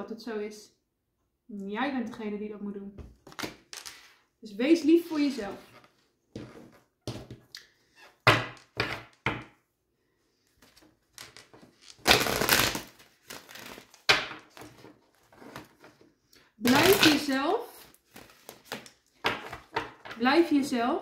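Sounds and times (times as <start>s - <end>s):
cards rustling: 17.9s - 19.7s.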